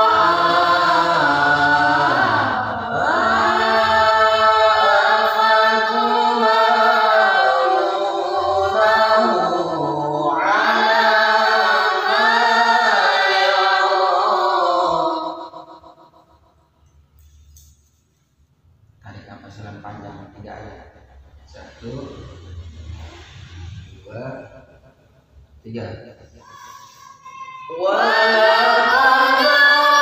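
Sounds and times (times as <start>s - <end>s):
boy reciting melodically: 26.4s - 30.0s.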